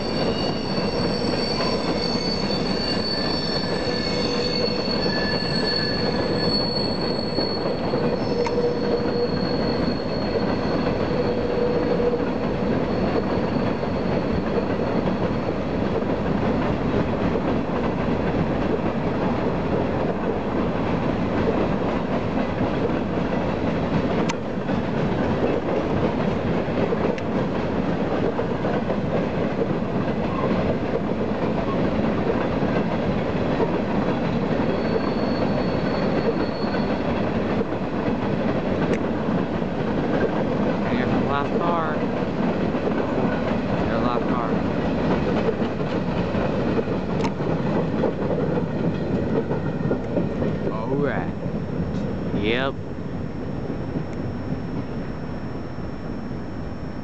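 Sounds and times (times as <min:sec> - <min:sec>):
high-pitched wheel squeal: 0:00.0 - 0:15.8, 0:34.3 - 0:37.2
train cars rumbling over rails: 0:00.0 - 0:57.0.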